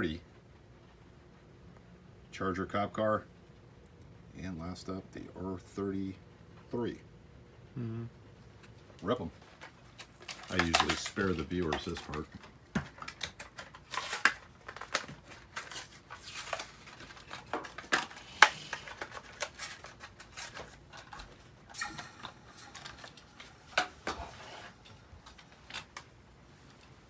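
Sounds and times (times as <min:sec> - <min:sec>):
plastic bubbles crackling: 0:09.4 - 0:24.2.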